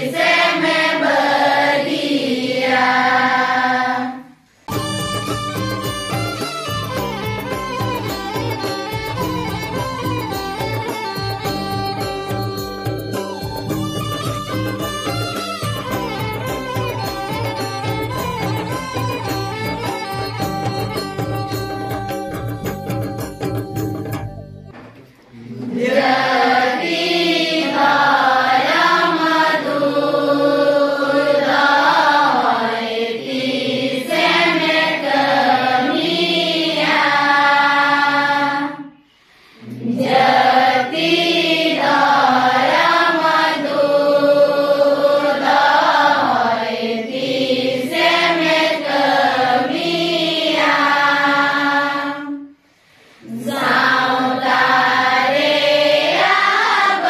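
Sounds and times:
women singing in unison: 0.0s - 4.4s, 25.4s - 39.0s, 39.6s - 52.6s, 53.2s - 57.0s.

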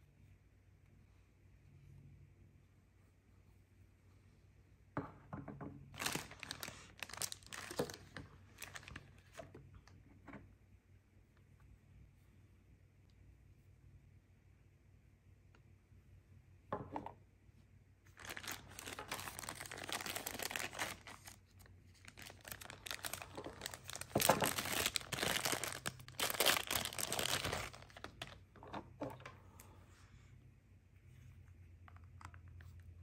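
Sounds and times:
plastic bag crinkling: 5.9s - 9.4s, 18.1s - 28.4s.

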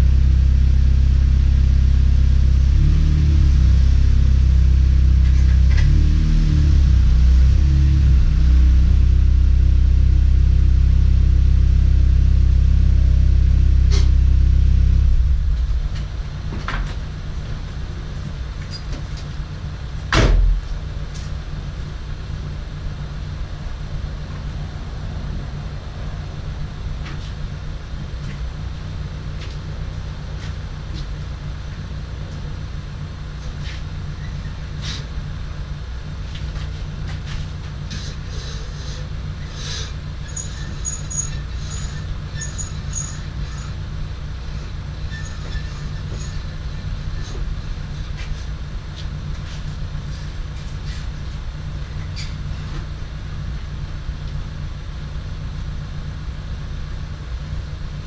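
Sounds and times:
low hum: 0.0s - 58.0s
hoist clicks knocks and squeaks: 40.3s - 43.8s, 44.6s - 47.5s.

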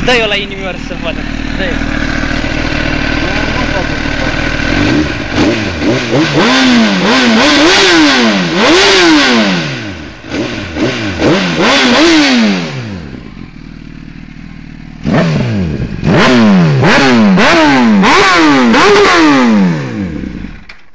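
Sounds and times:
motorcycle engine idling: 0.0s - 8.9s, 9.6s - 18.0s, 20.0s - 20.7s
motorcycle engine revving in blips: 0.0s - 20.8s.

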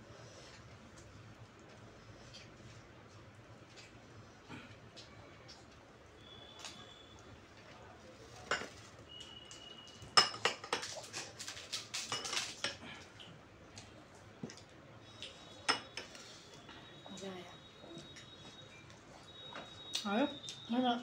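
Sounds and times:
cutlery clinking on plates: 8.4s - 8.9s, 10.1s - 11.2s, 12.0s - 12.8s, 15.7s - 16.2s.

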